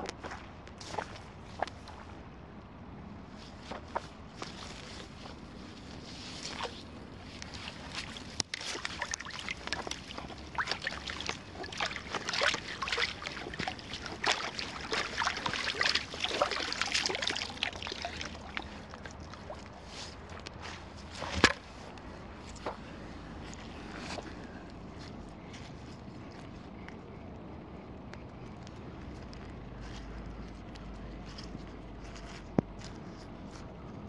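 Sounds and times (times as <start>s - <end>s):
net splashing in shallow water: 3.6s - 22.8s
net thumping on grass: 21.2s - 21.7s.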